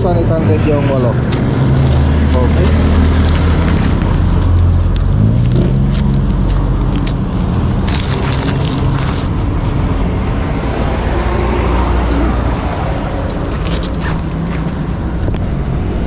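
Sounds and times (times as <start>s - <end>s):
paper receipt crackling: 1.3s - 9.4s.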